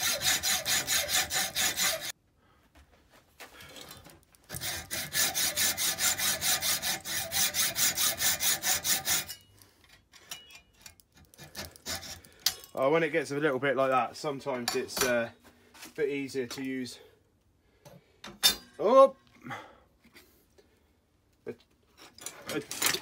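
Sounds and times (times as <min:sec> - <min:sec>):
hacksaw cutting metal bar: 0:00.0 - 0:02.1, 0:04.5 - 0:09.4, 0:10.3 - 0:12.6.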